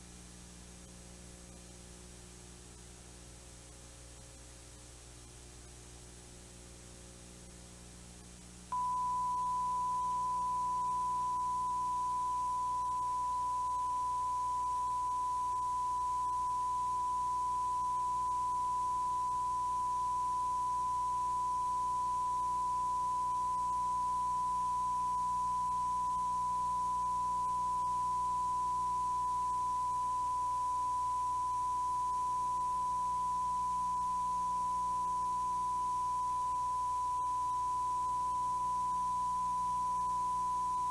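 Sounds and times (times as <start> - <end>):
faint tape hiss and hum: 0.0 - 40.9
steady pure test tone: 8.7 - 40.9.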